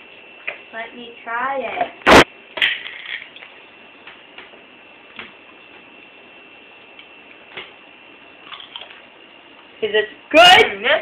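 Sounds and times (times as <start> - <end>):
room hiss: 0.0 - 11.0
steady high whine: 0.0 - 11.0
chip crunching: 8.4 - 9.0.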